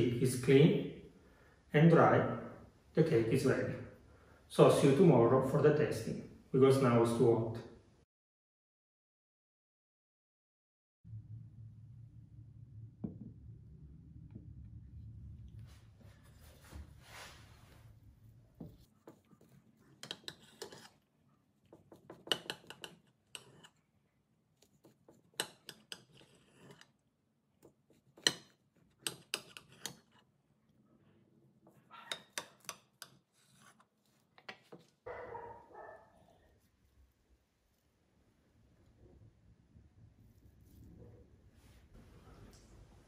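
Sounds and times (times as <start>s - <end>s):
knife sawing through crusty loaf: 19.1s - 21.0s.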